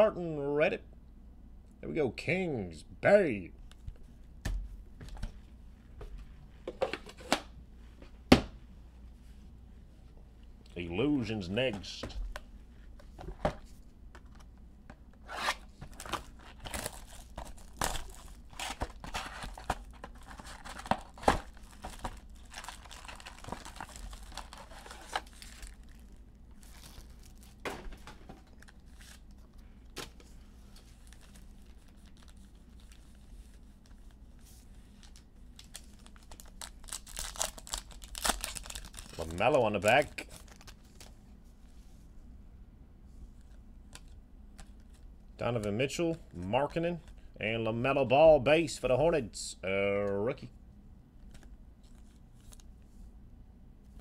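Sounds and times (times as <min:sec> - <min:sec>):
wrappers tearing and crinkling: 0:15.3 - 0:27.6, 0:28.4 - 0:29.5, 0:30.8 - 0:34.2, 0:34.8 - 0:41.1.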